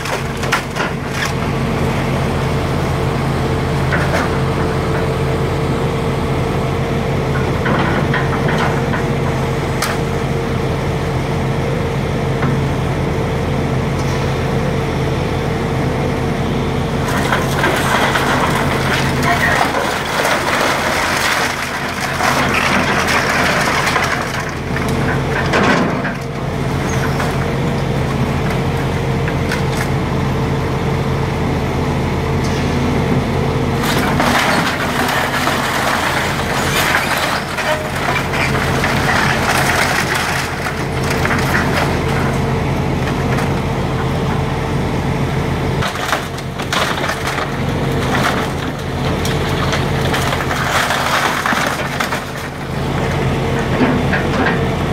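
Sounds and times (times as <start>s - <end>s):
diesel engine running under load: 0.0s - 54.9s
debris crashing down: 17.1s - 26.3s, 33.8s - 42.4s, 45.8s - 53.0s.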